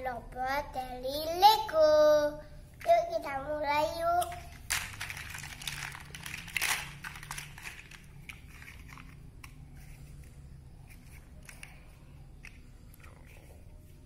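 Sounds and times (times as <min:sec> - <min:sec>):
plastic toy bricks clattering: 0:04.2 - 0:09.2.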